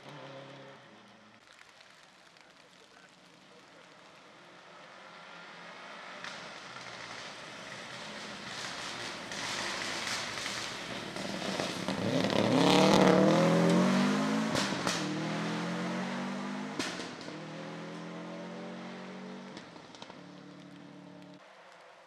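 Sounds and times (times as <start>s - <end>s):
rally car engine passing: 0.0s - 1.4s, 3.2s - 22.0s.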